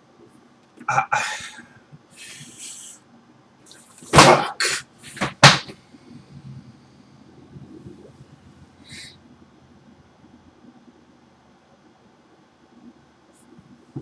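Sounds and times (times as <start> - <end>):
man breathing heavily: 1.1 - 3.0
short puffs of breath: 1.2 - 3.0, 8.8 - 9.2.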